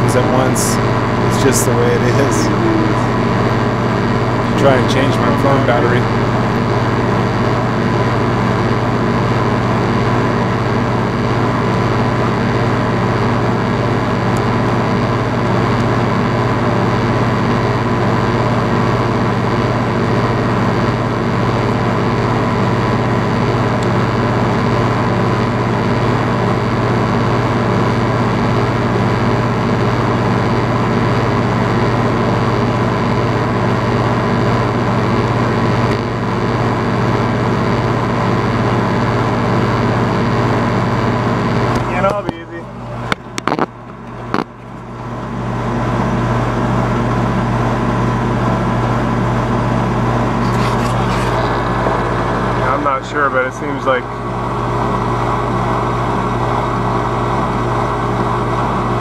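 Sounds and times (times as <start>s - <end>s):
condenser fan rushing: 0.0s - 11.6s, 29.8s - 59.0s
compressor hum: 0.0s - 16.1s, 19.7s - 59.0s.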